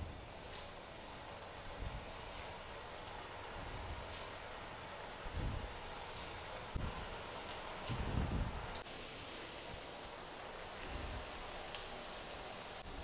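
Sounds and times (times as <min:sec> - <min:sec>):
food deep-frying in hot oil: 0:00.0 - 0:13.0.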